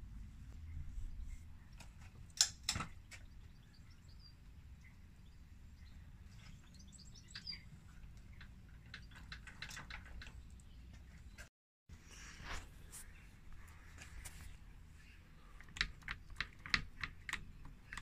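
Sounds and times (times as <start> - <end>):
birds chirping: 0.4 - 11.5.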